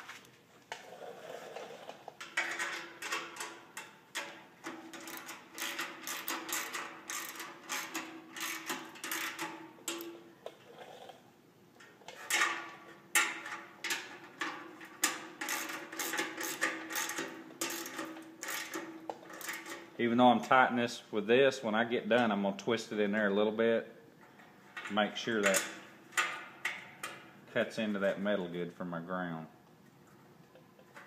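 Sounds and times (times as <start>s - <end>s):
ratcheting metallic clicks: 2.3s - 10.1s, 13.2s - 19.8s.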